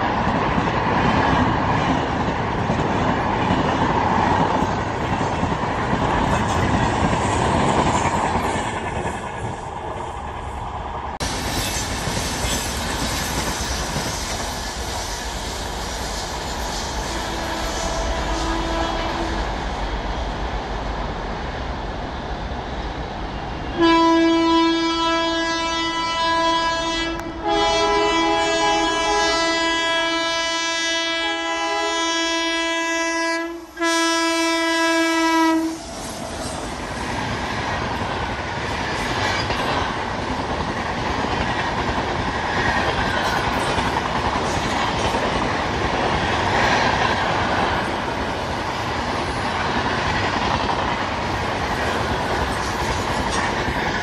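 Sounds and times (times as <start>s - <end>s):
train coaches rushing past: 0.0s - 54.0s
locomotive air horn blasts: 17.1s - 19.4s, 23.8s - 35.9s.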